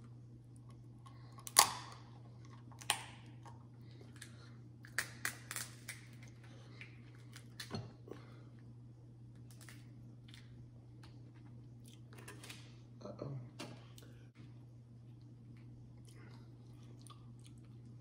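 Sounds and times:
wet biting and chewing: 0:16.0 - 0:18.0.

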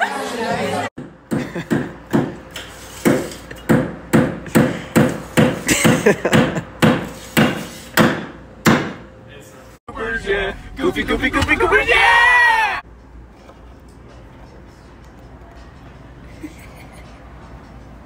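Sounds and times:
sharp knocks of hand tool: 0:03.0 - 0:09.0.

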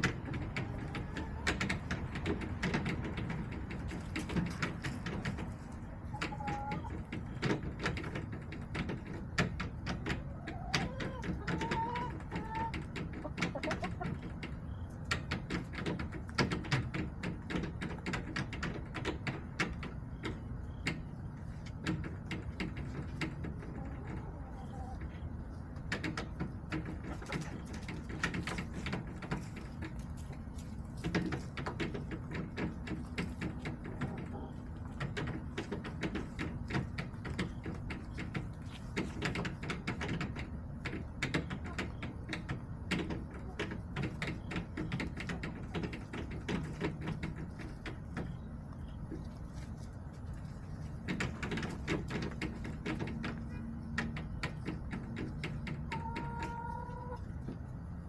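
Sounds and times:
chicken clucking: 0:00.0 - 0:58.0
chickens pecking hard surface: 0:00.0 - 0:58.0.

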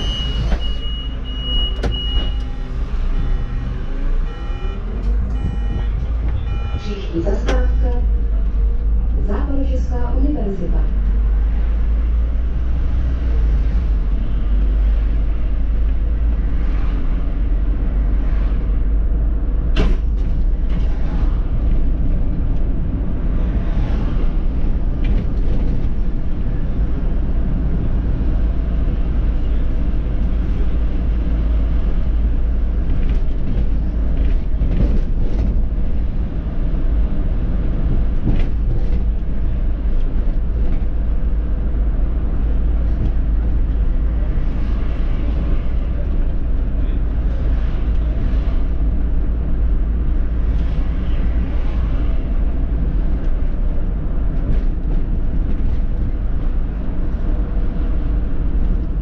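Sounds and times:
bus body rattles: 0:00.0 - 0:03.3, 0:13.4 - 0:59.0
bus engine and road rumble: 0:00.0 - 0:59.0.

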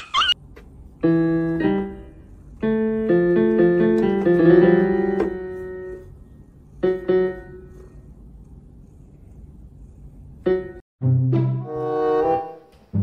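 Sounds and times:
electronic keyboard piano notes: 0:01.0 - 0:06.0.

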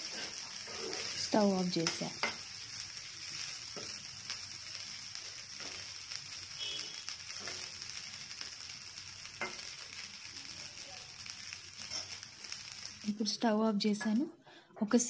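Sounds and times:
spatula scraping fried rice: 0:00.0 - 0:01.2
faint sizzle: 0:00.0 - 0:15.0.

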